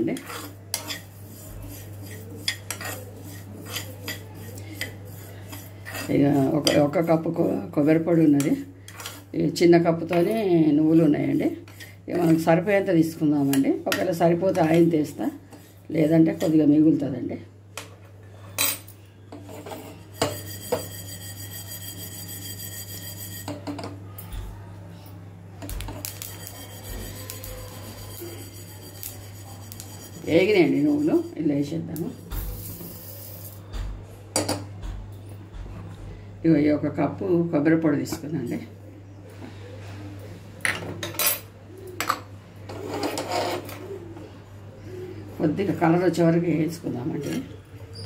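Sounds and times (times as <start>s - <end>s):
scraping in pan: 0.0s - 8.0s, 19.4s - 23.5s, 26.0s - 31.4s
seeds sliding in a pan: 32.6s - 33.6s.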